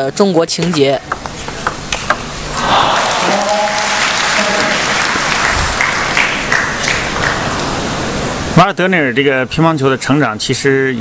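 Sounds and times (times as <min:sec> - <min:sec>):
spectators applauding: 0:02.5 - 0:08.0.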